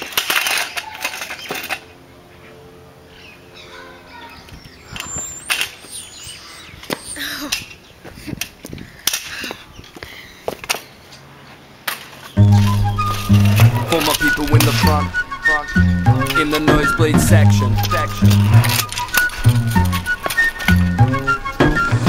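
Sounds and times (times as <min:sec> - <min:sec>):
metal scooter clattering on concrete: 0:00.0 - 0:02.0, 0:11.8 - 0:21.9.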